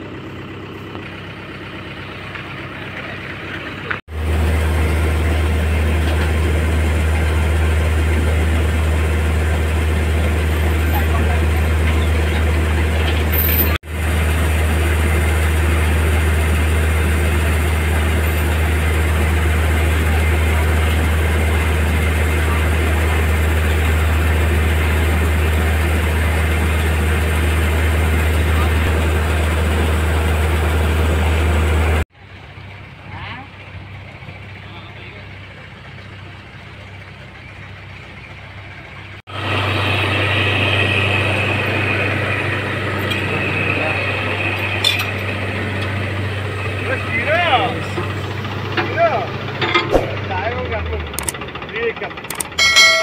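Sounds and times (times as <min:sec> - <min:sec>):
diesel engine idling: 0:00.0 - 0:53.0.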